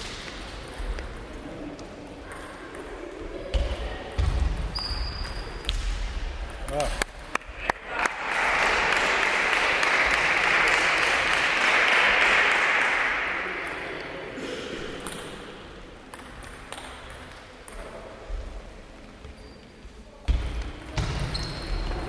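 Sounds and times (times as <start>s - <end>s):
spectators applauding: 7.3s - 13.4s.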